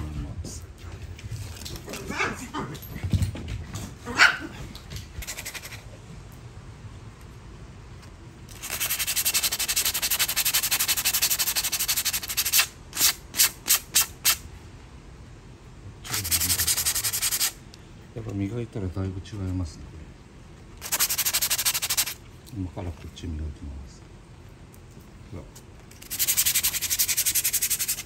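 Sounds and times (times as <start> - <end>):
dog barking: 4.1 - 4.6.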